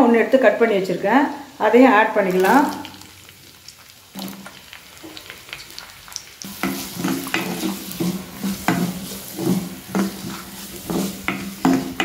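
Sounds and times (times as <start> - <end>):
onions sizzling in oil: 0.0 - 12.0
spatula scraping clay pot: 6.5 - 12.0.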